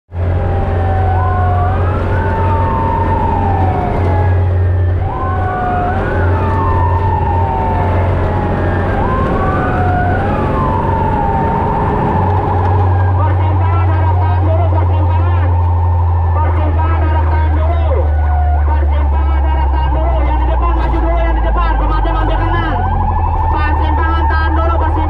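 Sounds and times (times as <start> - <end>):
engine drone: 0.1 - 25.0
fire truck siren wailing: 0.1 - 25.0
slower gliding siren tone: 0.2 - 25.0.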